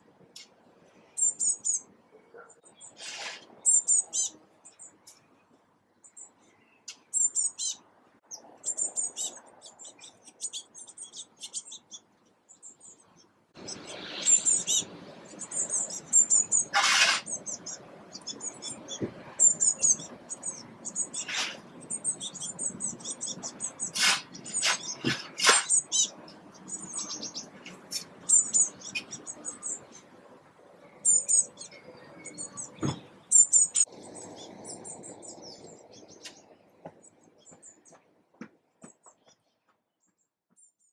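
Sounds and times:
bird chicks chirping: 8.4s - 30.3s, 30.9s - 38.0s.

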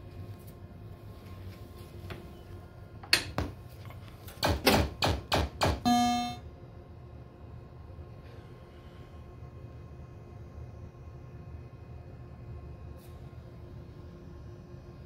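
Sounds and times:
pinball hits: 4.5s - 6.4s
pinball strikes: 4.5s - 6.4s
held electronic tone: 5.8s - 6.4s.

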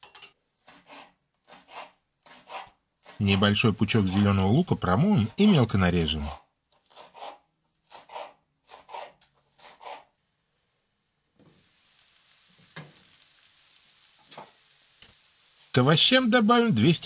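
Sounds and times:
knife chopping on wooden board: 0.6s - 3.2s, 6.9s - 10.1s
vegetables sizzling in oil: 9.6s - 17.0s.

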